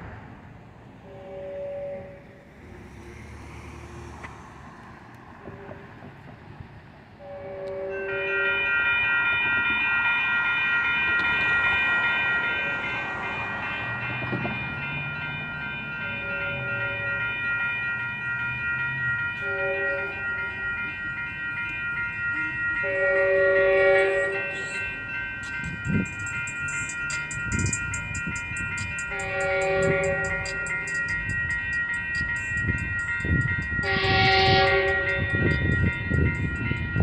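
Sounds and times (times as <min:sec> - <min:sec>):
train horn blasts: 0:01.0 - 0:02.4, 0:05.4 - 0:06.0, 0:07.2 - 0:08.8, 0:19.4 - 0:20.3, 0:22.3 - 0:24.9, 0:29.1 - 0:30.9, 0:33.8 - 0:35.6
railroad crossing bell ringing: 0:01.0 - 0:06.3, 0:07.1 - 0:37.0.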